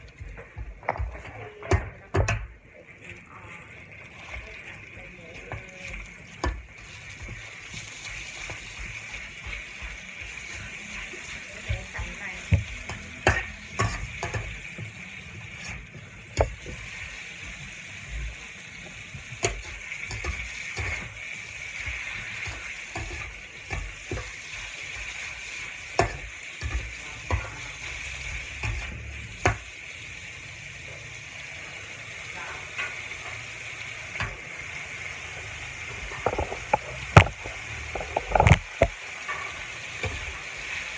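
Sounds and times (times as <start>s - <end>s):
meat sizzling in a wok: 0.0s - 2.8s, 3.7s - 40.9s
metal spatula scraping and clacking: 5.4s - 17.6s, 19.1s - 29.6s, 36.0s - 40.6s.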